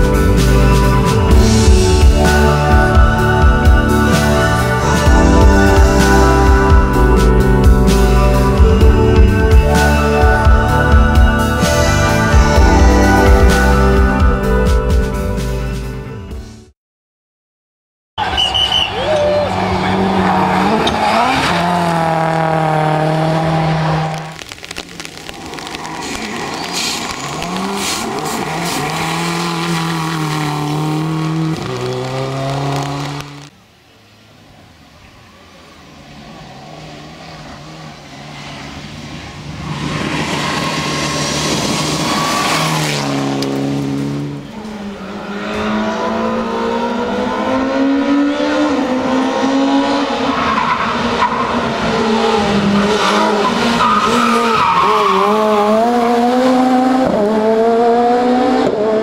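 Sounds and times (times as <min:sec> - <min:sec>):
rally car engines revving: 0:18.2 - 0:33.5, 0:34.5 - 0:59.0
tyres on gravel: 0:18.2 - 0:33.6.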